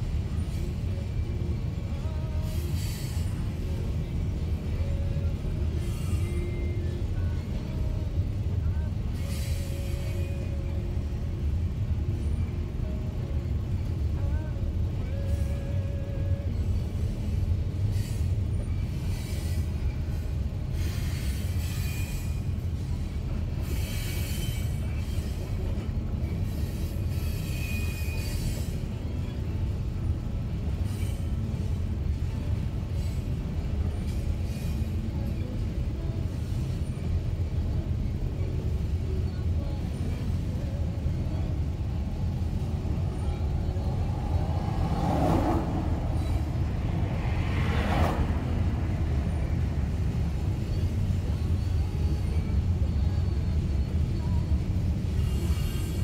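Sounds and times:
freight train rolling past: 0.0s - 56.0s
wheel squeal: 17.9s - 22.6s, 23.6s - 29.4s, 50.3s - 56.0s.

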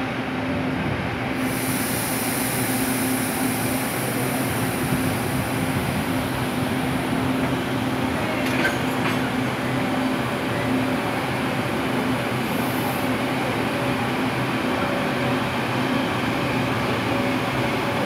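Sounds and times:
electric train hum: 0.0s - 18.0s
high hiss: 1.4s - 6.6s
wheel-on-rail rumble: 5.8s - 9.5s.

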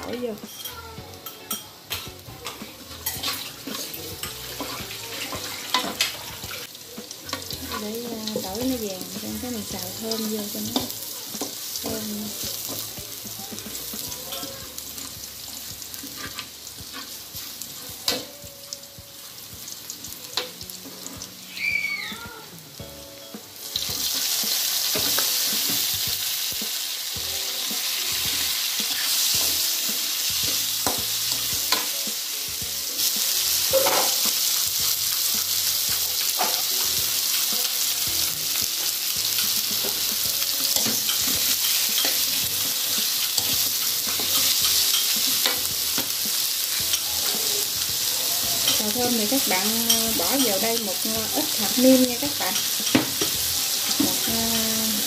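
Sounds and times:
food sizzling in oil: 0.0s - 55.0s
spatula scraping a pan: 2.4s - 8.4s, 15.9s - 17.6s.

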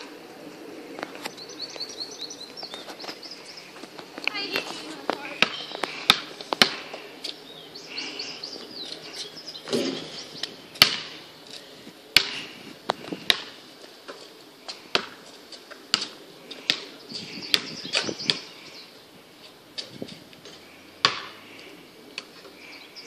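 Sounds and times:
birds chirping faintly: 0.0s - 23.0s
basketball bouncing on asphalt: 4.5s - 6.9s, 10.7s - 11.2s, 14.9s - 16.9s, 21.0s - 21.4s.

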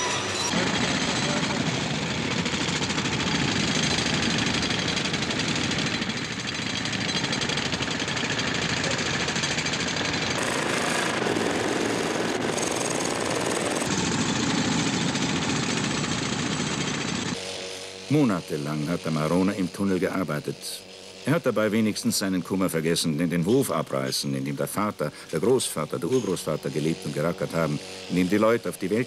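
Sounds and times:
pneumatic rock drill hammering: 0.0s - 20.2s, 23.3s - 29.0s.

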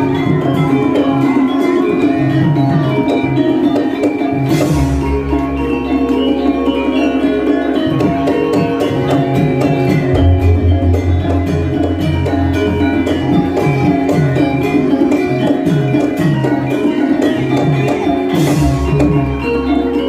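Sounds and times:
gamelan playing: 0.0s - 20.0s
deep gong: 10.1s - 13.5s.

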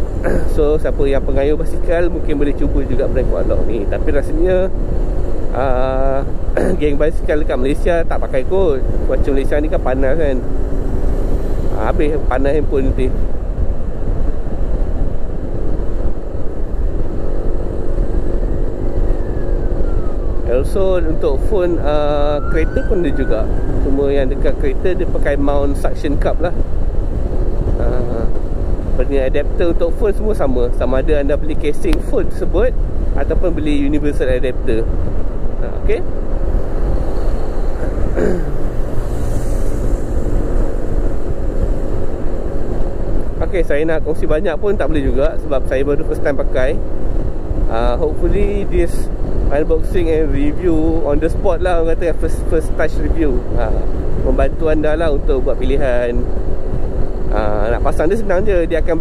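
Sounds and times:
scooter road noise: 0.0s - 59.0s
wind rush: 0.0s - 59.0s
scooter engine drone: 15.4s - 24.8s
car passing: 34.9s - 43.4s.

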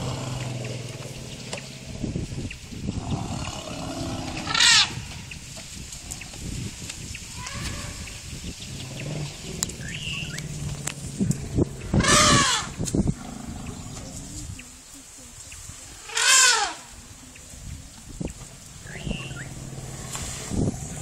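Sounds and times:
elephants rumbling calls: 0.0s - 5.4s, 7.3s - 14.7s, 15.8s - 17.6s, 18.2s - 21.0s
elephant trumpeting: 3.3s - 5.0s, 8.9s - 13.6s, 16.0s - 16.9s.

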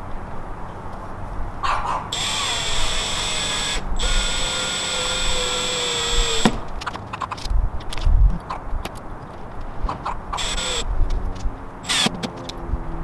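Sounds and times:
power drill motor whine: 2.2s - 6.6s, 10.4s - 10.9s, 11.8s - 12.1s.

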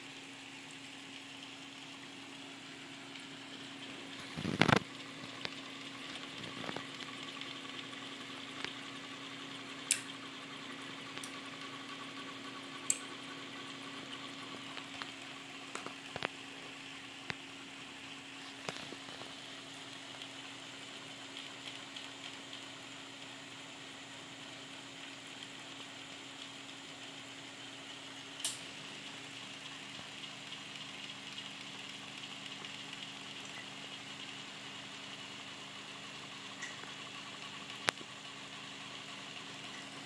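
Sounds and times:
lower machine hum: 0.0s - 40.0s
printer pump humming: 0.0s - 40.0s
sharp click: 9.9s - 10.1s.

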